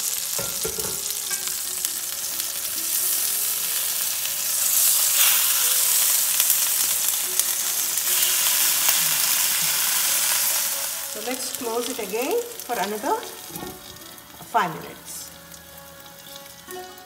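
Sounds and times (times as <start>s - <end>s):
fish sizzling in hot oil: 0.0s - 17.0s.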